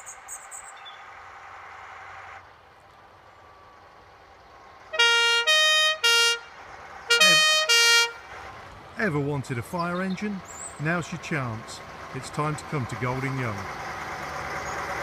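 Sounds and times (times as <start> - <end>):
fire engine two-tone horn blasts: 4.9 - 8.4.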